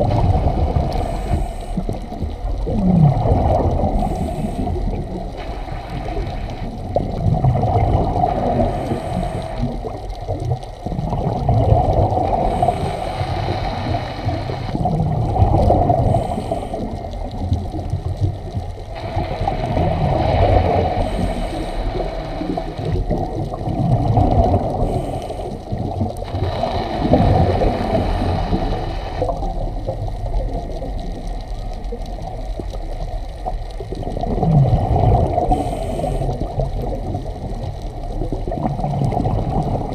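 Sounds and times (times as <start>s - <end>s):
low rumble of water: 0.0s - 39.9s
diver breathing through regulator: 0.7s - 6.6s, 8.1s - 9.9s, 12.0s - 14.9s, 15.5s - 17.4s, 19.1s - 22.9s, 24.3s - 29.4s, 34.8s - 36.8s.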